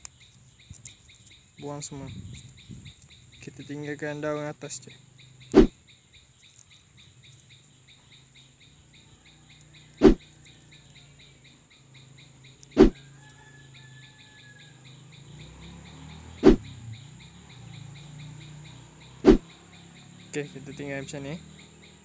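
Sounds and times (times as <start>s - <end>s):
high insect whine: 0.0s - 22.0s
insects chirping: 0.0s - 22.0s
loud short thumps: 19.2s - 19.4s.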